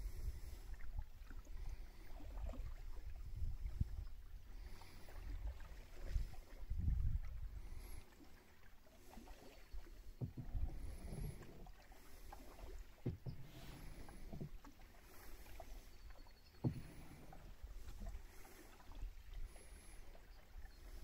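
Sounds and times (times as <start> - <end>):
paddle strokes and splashes: 0.0 - 21.0
knocks against canoe hull: 10.2 - 11.7, 13.0 - 14.7, 16.6 - 18.1.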